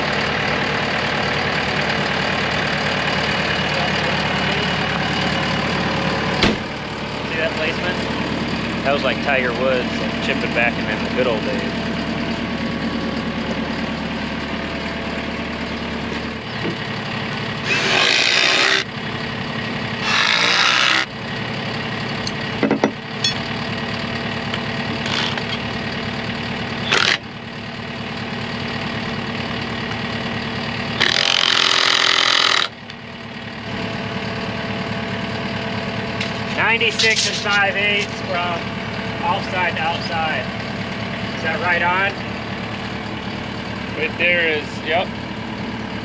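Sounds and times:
engine idling: 0:00.0 - 0:46.0
cordless driver driving screws: 0:17.6 - 0:18.8, 0:20.0 - 0:21.1, 0:26.9 - 0:27.2, 0:31.0 - 0:32.7.

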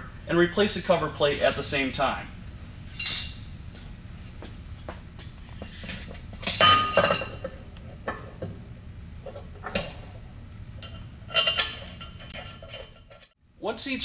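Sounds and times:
metal clanks and clinks: 0:05.2 - 0:08.5, 0:10.8 - 0:13.4.

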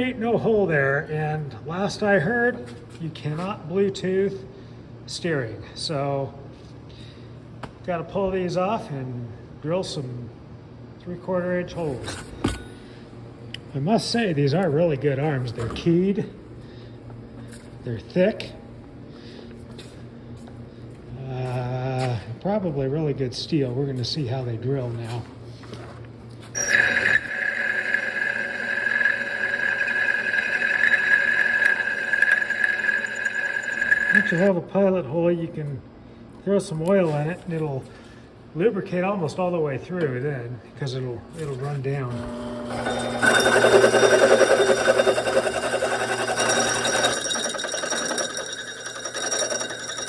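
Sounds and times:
drill bit boring through steel: 0:26.6 - 0:34.5, 0:42.7 - 0:50.0.

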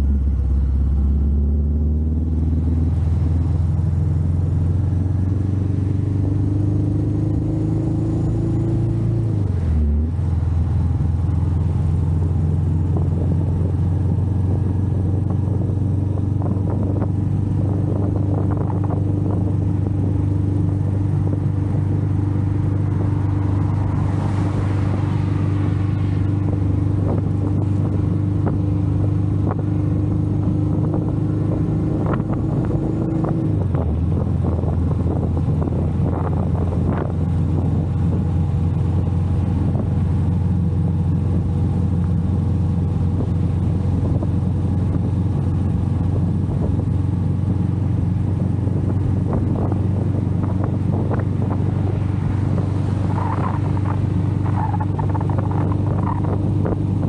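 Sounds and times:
motorcycle engine cruising: 0:00.0 - 0:57.0
wind and road noise: 0:00.0 - 0:57.0.

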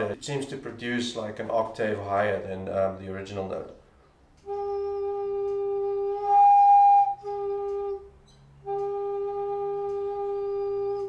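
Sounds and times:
wooden flute playing low note: 0:04.4 - 0:11.0.

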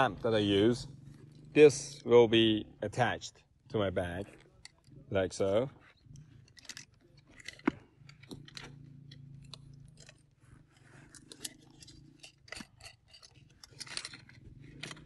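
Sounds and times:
rustling: 0:05.7 - 0:15.0.

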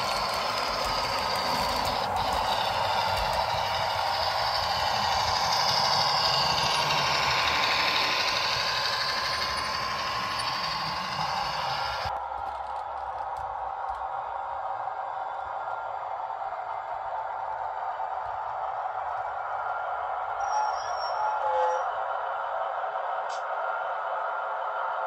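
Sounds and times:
model train wheels rattling: 0:00.0 - 0:13.5.

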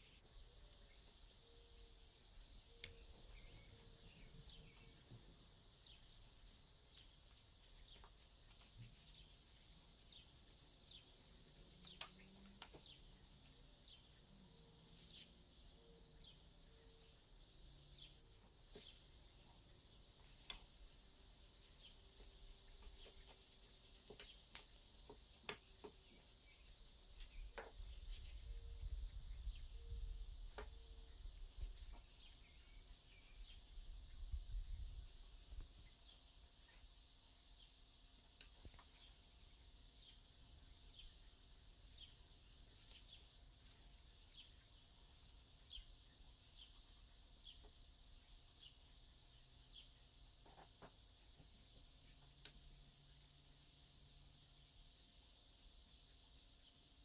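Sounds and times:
bird chirping: 0:00.0 - 0:57.0
rolling pin rubbing dough: 0:07.0 - 0:13.6, 0:18.3 - 0:28.3.

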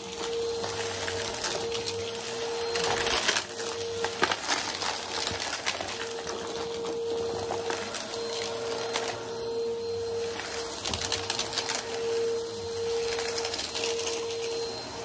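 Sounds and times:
debris crunching in vacuum nozzle: 0:00.0 - 0:14.8
vacuum cleaner motor whine: 0:00.0 - 0:15.0.

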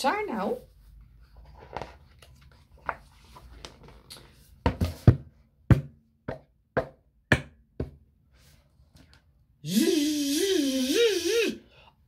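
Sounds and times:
sharp knocks on hard surface: 0:04.6 - 0:08.0.

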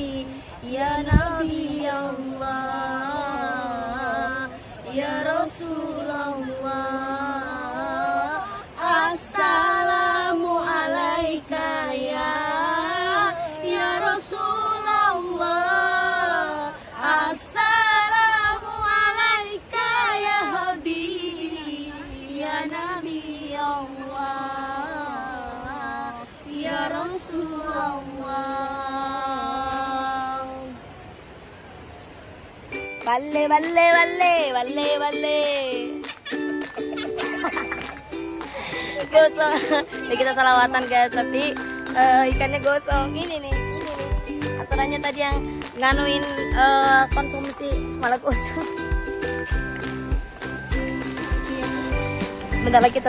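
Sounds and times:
voices singing devotional song: 0:00.0 - 0:31.2.

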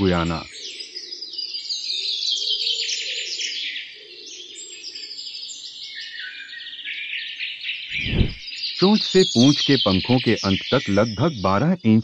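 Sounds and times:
birds chirping in chorus: 0:00.0 - 0:12.0.

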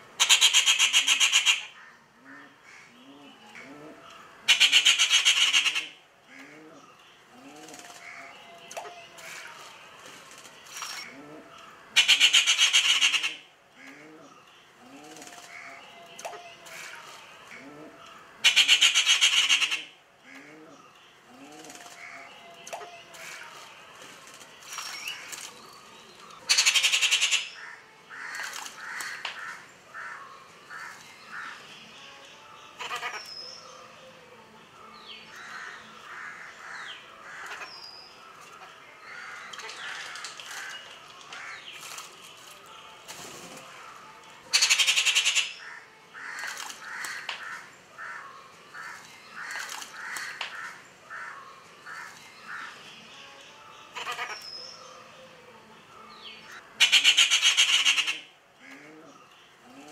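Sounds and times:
harsh repeated bird calls: 0:00.2 - 0:03.7, 0:04.4 - 0:06.9, 0:11.9 - 0:14.0, 0:18.4 - 0:20.5, 0:26.4 - 0:31.7, 0:39.0 - 0:42.1, 0:44.5 - 0:52.9, 0:56.3 - 0:59.9.

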